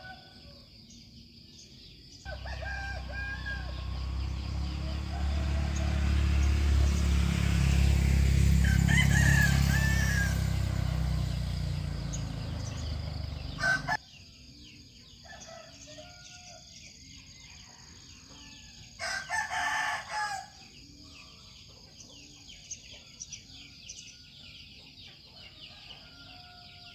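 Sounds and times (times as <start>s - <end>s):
rooster crowing: 2.3s - 14.0s, 17.7s - 20.7s, 25.4s - 26.9s.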